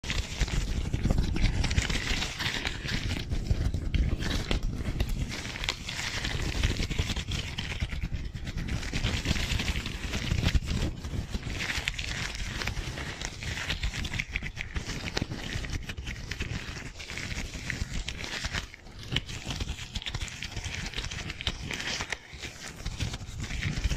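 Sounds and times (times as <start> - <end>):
gloved hands rubbing microphone: 0.0 - 23.9.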